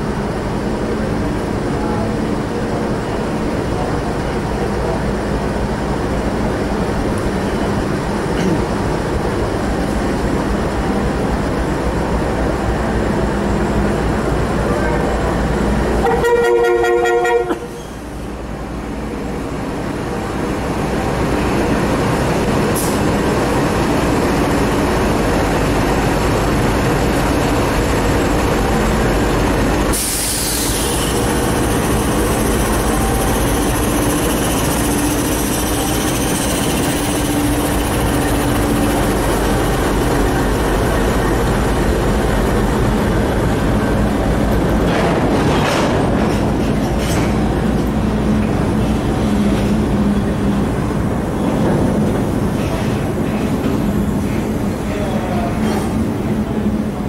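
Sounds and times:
diesel locomotives working: 0:00.0 - 0:57.0
locomotive horn blast: 0:16.0 - 0:17.8.

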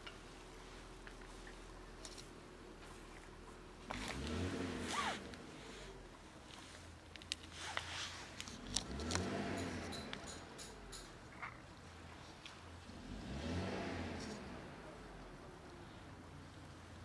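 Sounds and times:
road vehicles passing: 0:03.8 - 0:06.8, 0:07.7 - 0:17.0.

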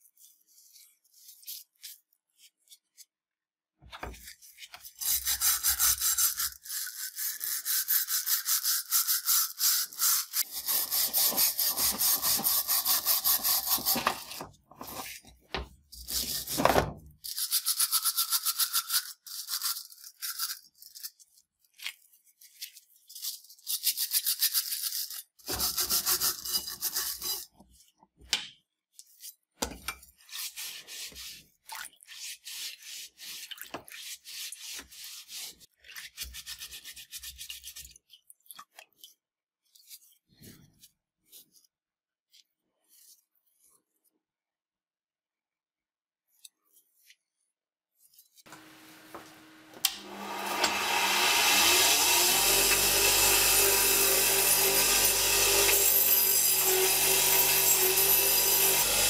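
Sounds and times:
wire brush scrubbing steel: 0:04.9 - 0:15.3, 0:24.2 - 0:27.5, 0:50.0 - 0:59.0.

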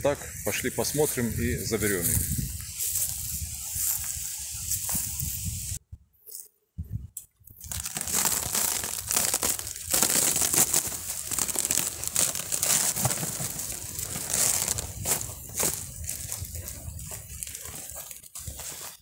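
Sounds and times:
cover sheet crinkling and rustling: 0:07.6 - 0:19.0.

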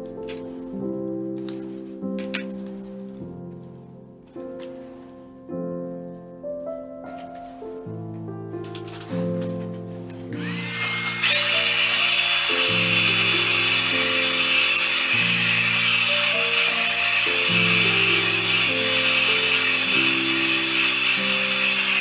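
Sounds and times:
slow keyboard music: 0:00.0 - 0:22.0
hair dryer blowing: 0:10.4 - 0:22.0.

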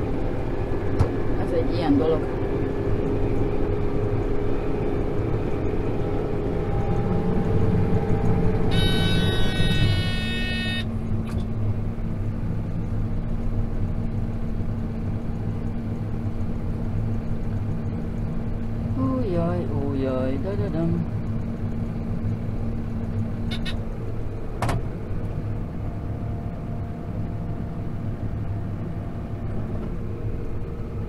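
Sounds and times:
tractor engine running: 0:02.3 - 0:19.1
high electronic warning beeper: 0:08.7 - 0:10.9.

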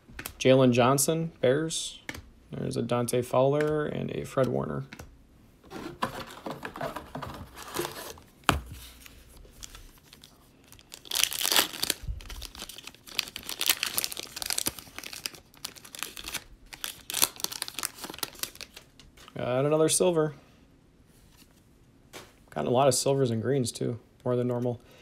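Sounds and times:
cards rustling: 0:05.7 - 0:19.5
foil wrapper crinkling: 0:09.6 - 0:18.9
foil wrapper tearing: 0:10.1 - 0:18.8.

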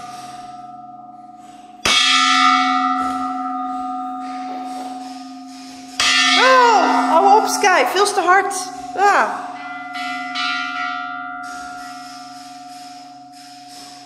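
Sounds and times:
brass bell struck with mallet: 0:01.9 - 0:12.3.

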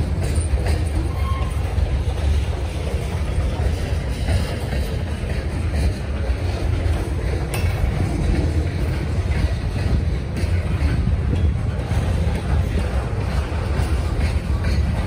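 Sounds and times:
train wheels rumbling on rail: 0:00.0 - 0:15.0.

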